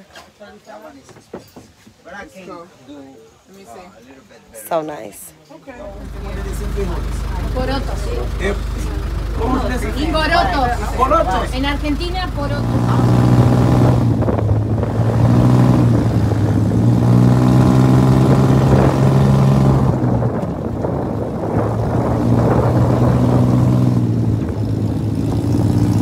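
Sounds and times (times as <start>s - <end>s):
vehicle engine running: 5.8s - 26.0s.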